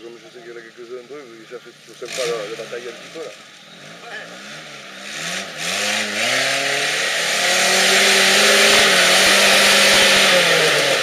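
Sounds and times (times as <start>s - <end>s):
engine revving hard: 2.0s - 11.0s.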